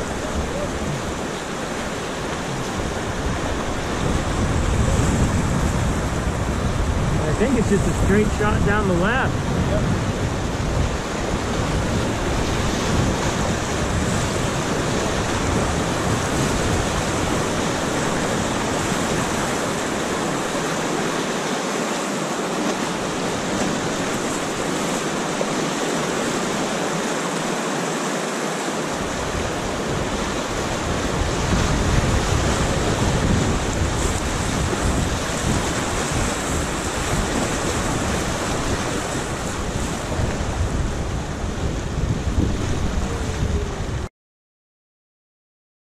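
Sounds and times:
wind rumble on microphone: 0.0s - 20.7s, 28.9s - 44.1s
whitewater rushing and splashing: 0.0s - 44.1s.

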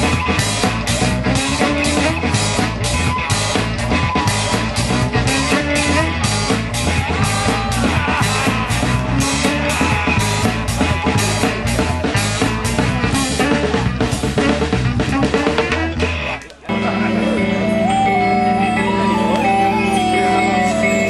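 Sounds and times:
live rock band playing: 0.0s - 21.0s.

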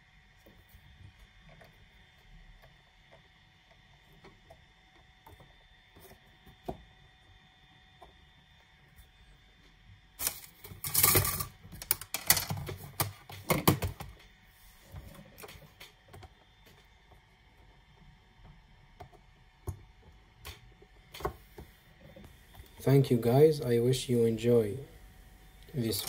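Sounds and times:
plastic clicks and rattles: 10.2s - 14.3s.

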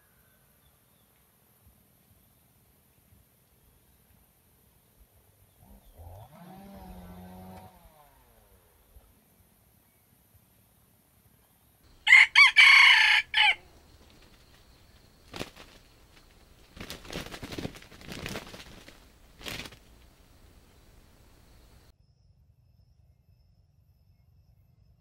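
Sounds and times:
rooster crowing: 11.9s - 13.7s
faint rustling: 13.6s - 21.9s.

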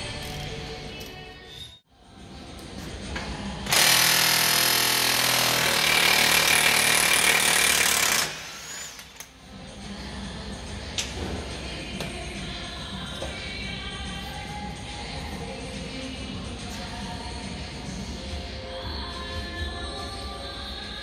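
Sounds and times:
impact wrench hammering: 3.7s - 9.2s.

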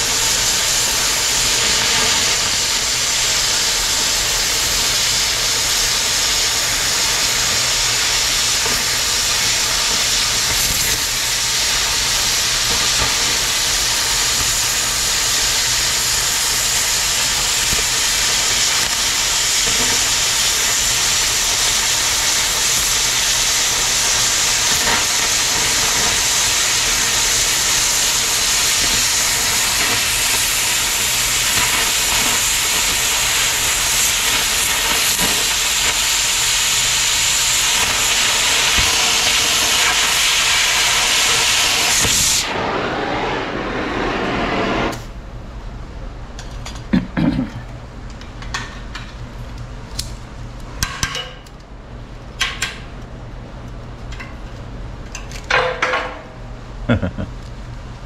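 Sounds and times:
cutting torch hissing: 0.0s - 45.2s.

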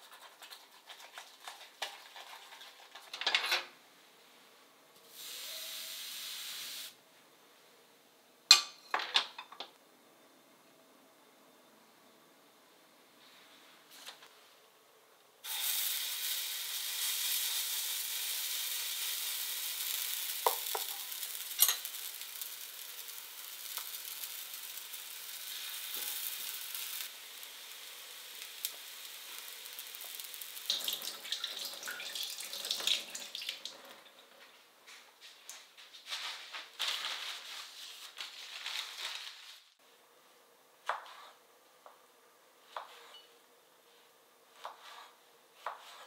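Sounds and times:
batter sizzling in hot oil: 5.1s - 7.0s, 15.4s - 33.7s.

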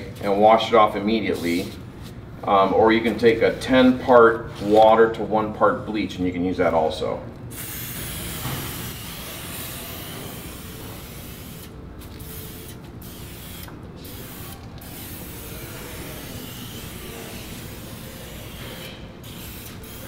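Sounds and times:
sprayer hissing: 7.5s - 20.0s.

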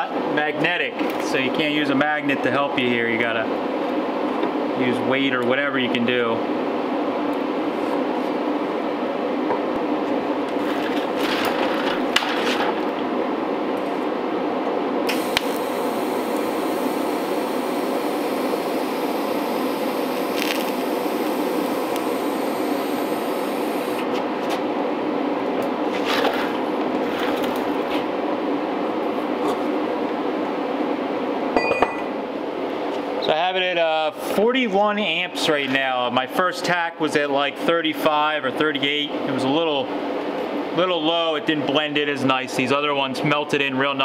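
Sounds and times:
steady hum: 0.0s - 35.4s
welding arc hiss: 15.1s - 24.1s.

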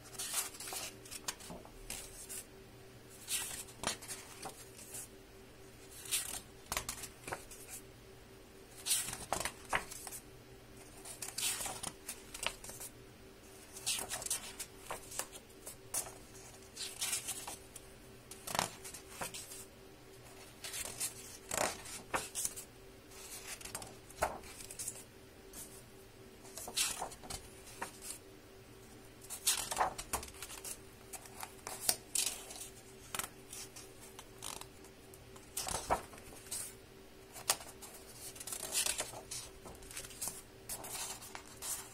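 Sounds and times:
faint steady hum: 0.0s - 41.9s
book pages turning: 0.1s - 2.4s, 3.2s - 5.1s, 8.8s - 10.2s, 10.8s - 12.9s, 26.5s - 28.2s, 29.2s - 41.9s.

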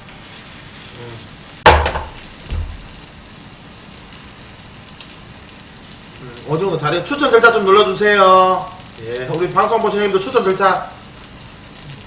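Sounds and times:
pancake sizzling in a frying pan: 0.0s - 12.0s
pan knocking on burner: 1.6s - 3.0s
soft thump: 1.7s - 3.0s.

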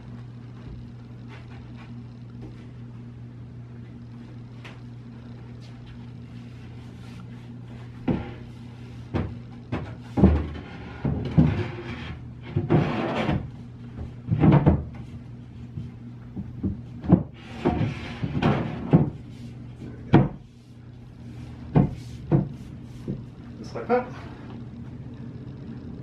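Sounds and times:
steady low hum: 0.0s - 26.0s
shelf knocking and scraping in cabinet: 9.1s - 15.0s, 16.4s - 19.3s, 21.6s - 23.3s.

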